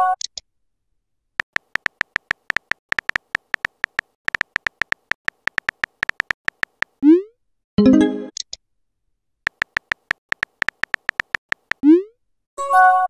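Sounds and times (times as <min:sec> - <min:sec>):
simulated keyboard clicks: 0:01.4 - 0:07.0, 0:09.5 - 0:11.9.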